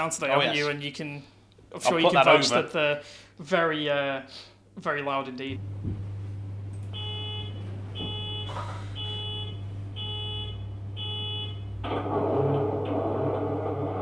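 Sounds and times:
beeps: 6.9 - 11.6.

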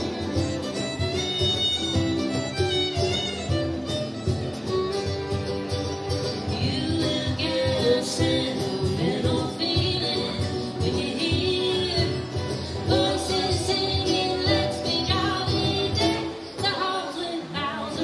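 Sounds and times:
fiddle: 0.0 - 18.0
strummed acoustic guitar: 0.0 - 18.0
woman singing: 6.4 - 18.0.

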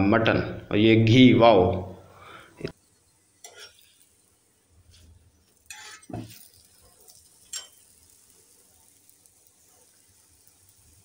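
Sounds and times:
utensil clinking on iron pan: 3.4 - 3.8, 7.2 - 8.0.

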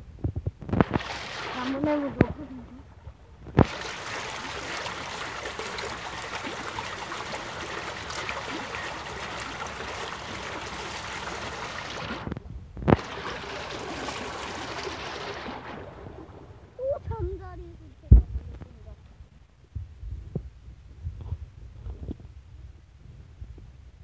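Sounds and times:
water sloshing and trickling: 0.6 - 18.7.

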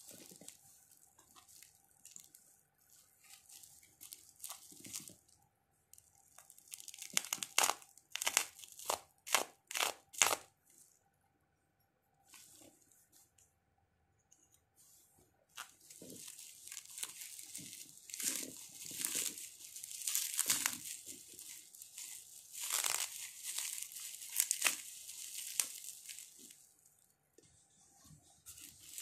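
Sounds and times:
bubble wrap crackling: 0.0 - 10.6, 15.5 - 27.1, 28.2 - 29.0.

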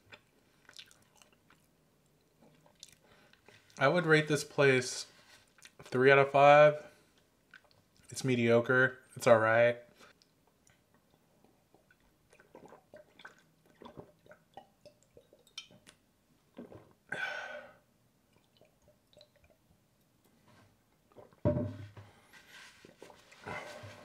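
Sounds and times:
gulping and swallowing: 11.5 - 15.8
breathy exhale: 17.1 - 17.8.

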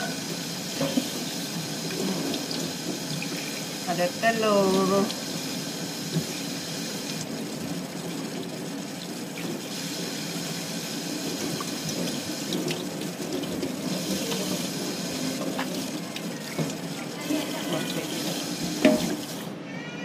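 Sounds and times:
tap running into a steel sink: 18.6 - 19.4.

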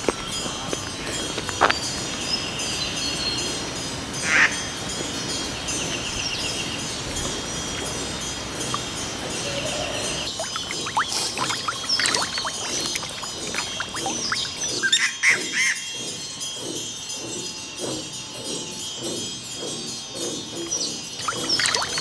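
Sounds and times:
birds calling: 0.0 - 16.8, 20.2 - 22.0
high pulsing trill: 5.7 - 18.2.

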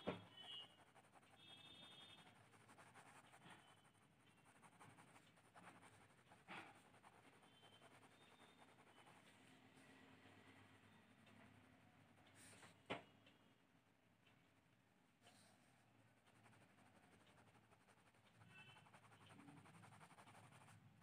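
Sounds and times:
pen scratching on paper: 0.0 - 9.4, 16.2 - 21.0.

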